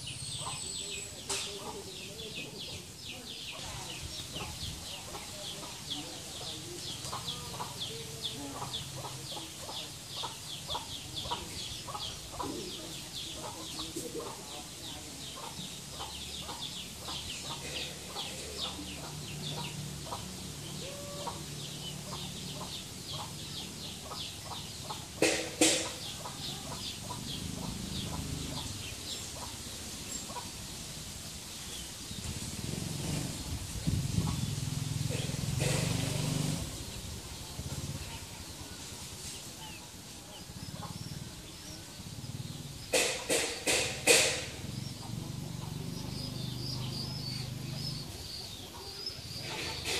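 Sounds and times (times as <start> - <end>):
chickens clucking: 0.0 - 49.9
small birds chirping: 0.0 - 49.9.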